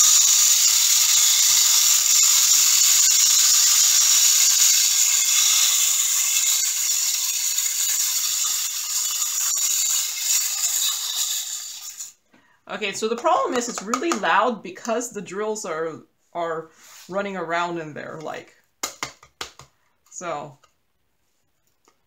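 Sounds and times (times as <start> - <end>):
small beads rattling inside vacuum: 0.0 - 12.2.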